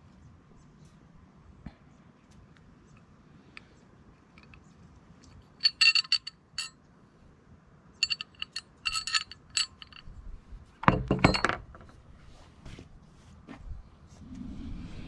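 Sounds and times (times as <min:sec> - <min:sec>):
metal brackets clinking: 0:05.2 - 0:06.8, 0:08.0 - 0:10.1, 0:10.8 - 0:11.9
brackets clattering on workbench: 0:10.8 - 0:11.9.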